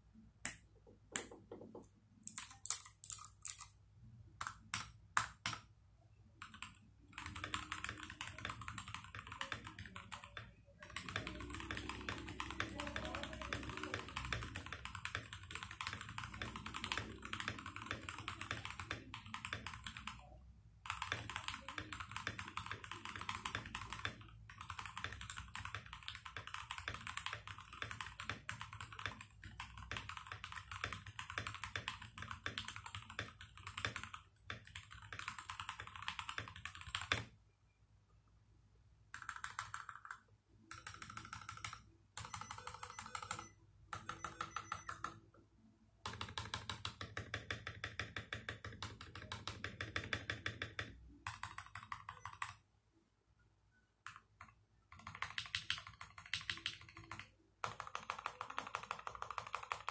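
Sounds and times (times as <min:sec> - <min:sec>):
mechanical keyboard typing: 0:01.1 - 0:03.8, 0:04.4 - 0:05.7, 0:06.4 - 0:37.3, 0:39.1 - 0:45.3, 0:46.0 - 0:52.6, 0:54.0 - 0:59.9.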